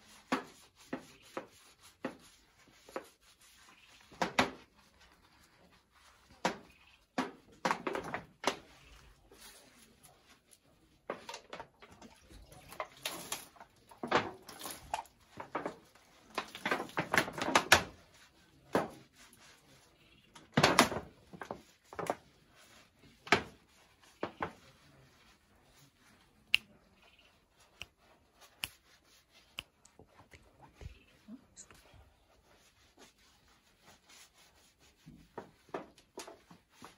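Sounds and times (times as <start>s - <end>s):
scrubbing skin: 0.0s - 7.5s, 21.5s - 35.6s.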